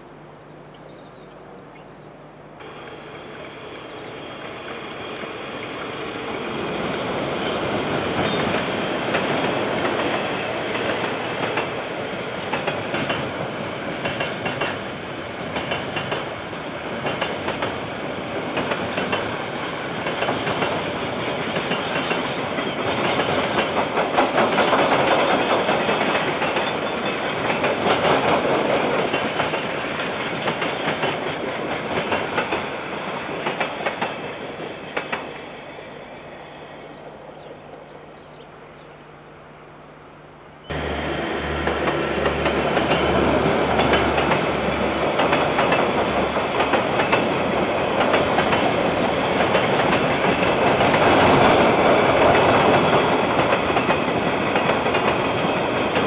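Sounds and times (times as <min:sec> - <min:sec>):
diesel locomotive rumble: 0:00.0 - 0:56.0
train wheels clacking over rail joints: 0:07.4 - 0:14.8, 0:15.5 - 0:17.8, 0:18.5 - 0:32.7, 0:33.3 - 0:34.3, 0:34.9 - 0:35.3, 0:41.6 - 0:56.0.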